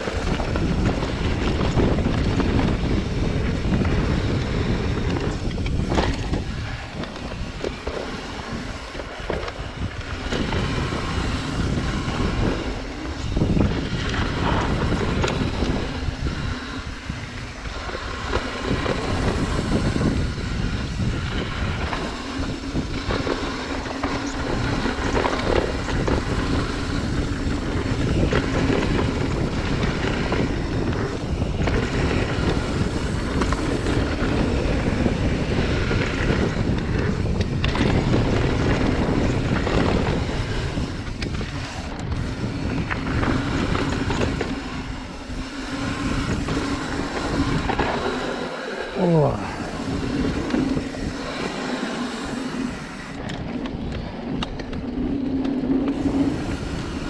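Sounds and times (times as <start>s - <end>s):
mountain bike rattling over dirt: 0.0s - 57.0s
wind buffeting microphone: 0.0s - 57.0s.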